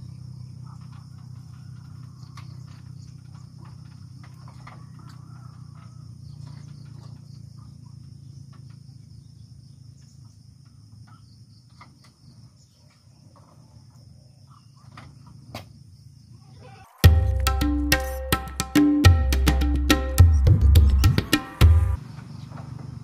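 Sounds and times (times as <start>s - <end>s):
music with wood-block beat: 17.0s - 22.0s.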